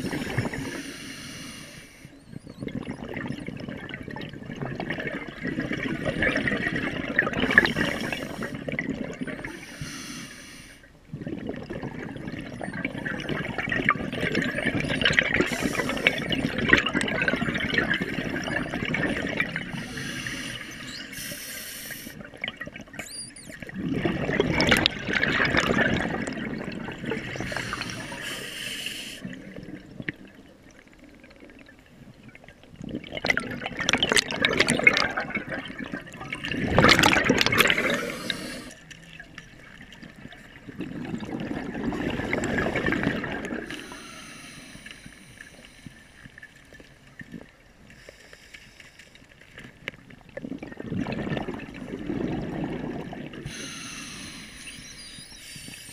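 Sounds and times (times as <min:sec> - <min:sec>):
exhaled bubbles rushing underwater: 0:00.0 - 0:48.1, 0:49.3 - 0:55.9
hissing regulator inhalations: 0:00.2 - 0:02.2, 0:09.5 - 0:10.8, 0:15.5 - 0:16.4, 0:19.7 - 0:22.2, 0:27.4 - 0:29.3, 0:37.6 - 0:38.8, 0:43.6 - 0:46.3, 0:53.4 - 0:55.9.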